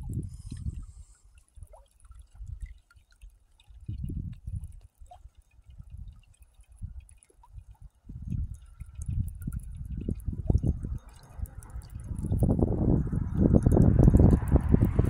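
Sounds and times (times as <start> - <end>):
wind buffeting microphone: 0.0 - 1.1, 3.8 - 4.7, 7.6 - 15.0
water lapping and dripping: 0.0 - 15.0.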